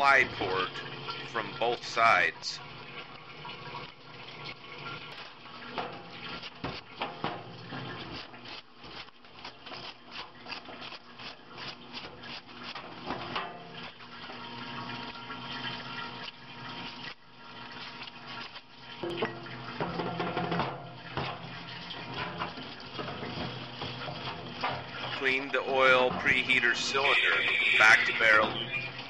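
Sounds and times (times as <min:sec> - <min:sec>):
water running into metal sink: 0:00.0 - 0:29.0
brush scrubbing metal parts: 0:05.1 - 0:14.1, 0:17.0 - 0:19.0, 0:19.8 - 0:28.4.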